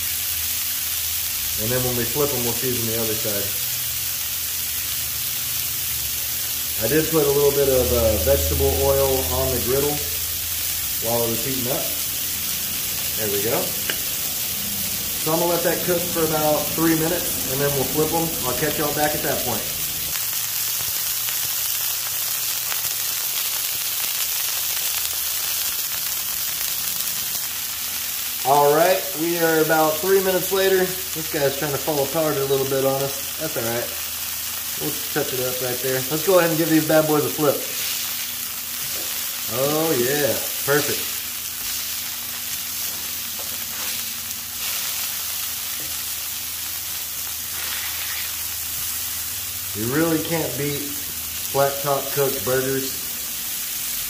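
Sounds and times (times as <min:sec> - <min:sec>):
burger patties sizzling on griddle: 0:00.0 - 0:54.0.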